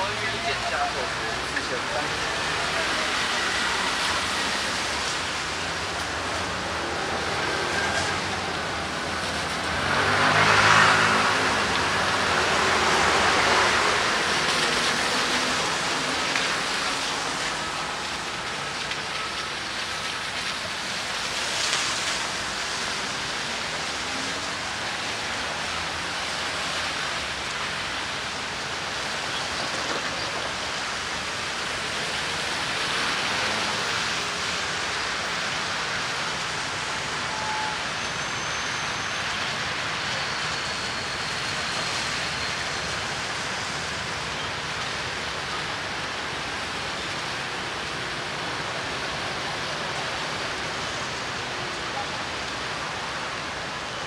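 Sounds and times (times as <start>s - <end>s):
steady rain hiss: 0.0s - 54.0s
traffic on wet roads: 0.0s - 54.0s
vehicle passing: 9.6s - 14.0s.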